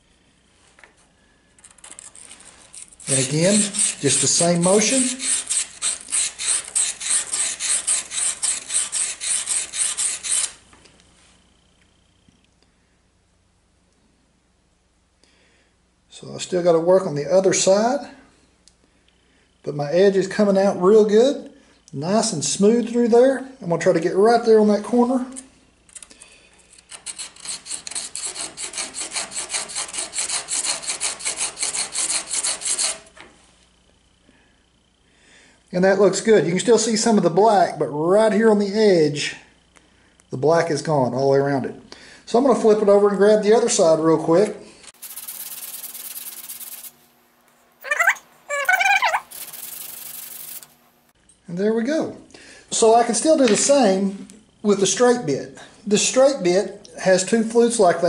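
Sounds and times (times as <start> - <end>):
bit scraping on sharpening stone: 3.0 - 10.6, 45.0 - 47.0, 47.8 - 50.7.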